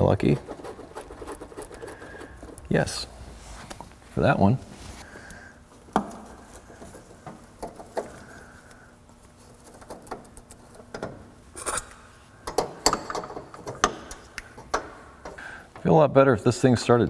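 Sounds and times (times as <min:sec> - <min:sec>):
soft scraping and rustling: 0:00.2 - 0:05.2.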